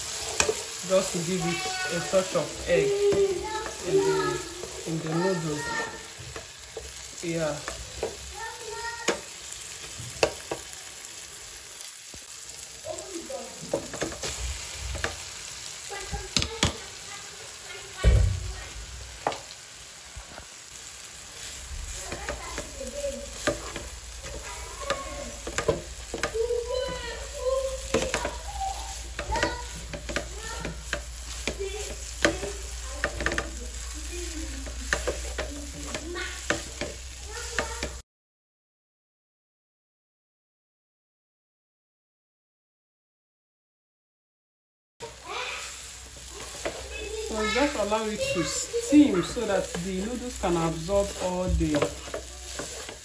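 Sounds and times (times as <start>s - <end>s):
plastic spatula scraping a pan: 0.0s - 8.2s, 21.4s - 38.0s, 46.2s - 53.0s
vegetables sizzling in a frying pan: 0.0s - 38.0s, 45.0s - 53.0s
sharp knocks against a pan: 16.3s - 16.8s, 32.2s - 33.6s.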